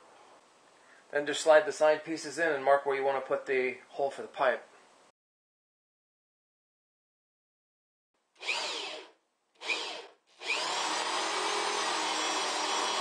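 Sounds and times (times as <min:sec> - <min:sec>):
electric drill boring into wood: 0:08.4 - 0:13.0.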